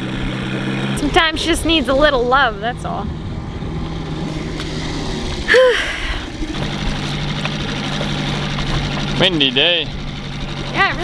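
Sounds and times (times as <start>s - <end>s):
outboard motor idling: 0.0s - 11.0s.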